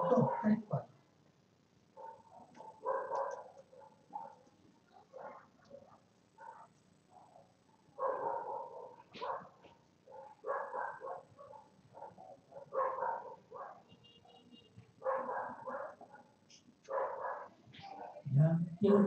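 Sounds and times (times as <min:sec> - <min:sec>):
dog barking: 0:00.0 - 0:00.8, 0:02.0 - 0:18.3.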